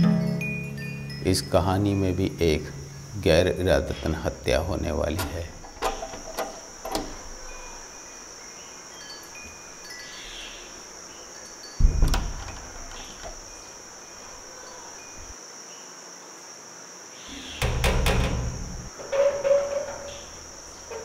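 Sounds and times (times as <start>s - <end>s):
wind chimes tinkling: 0.0s - 2.4s, 7.4s - 12.0s
steady high hiss: 0.0s - 21.0s
deep thump: 11.8s - 13.2s.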